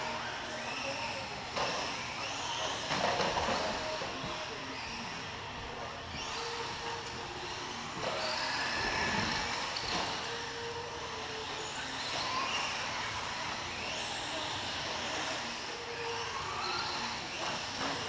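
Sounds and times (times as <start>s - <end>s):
rc car motor and gears whining: 0.0s - 18.0s.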